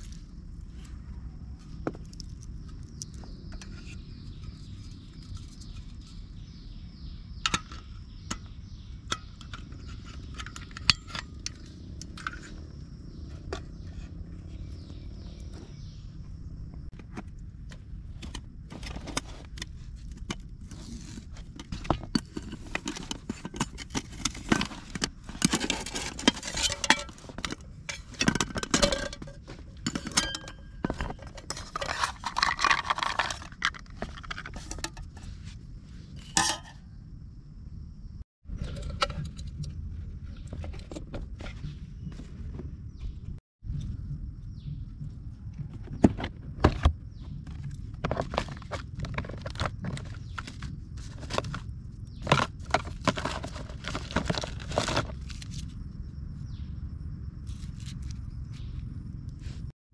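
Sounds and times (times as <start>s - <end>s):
metal cookware clinking and clattering: 22.2s - 33.5s, 36.2s - 36.8s.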